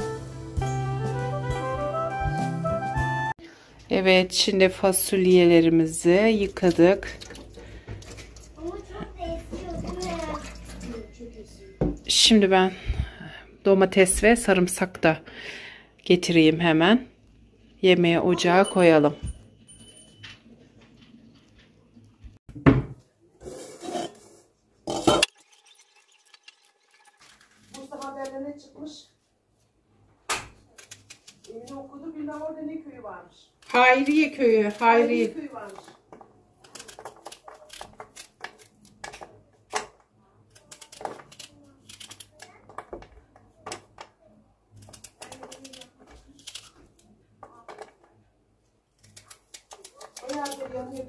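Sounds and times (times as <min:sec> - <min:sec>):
pot and lid clattering: 0:24.9 - 0:25.4.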